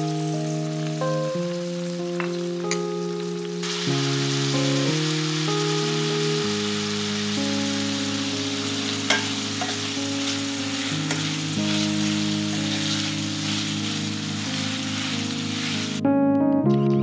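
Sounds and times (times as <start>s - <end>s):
meat sizzling in a frying pan: 0.0s - 16.0s
spatula knocking against pan: 9.1s - 9.8s.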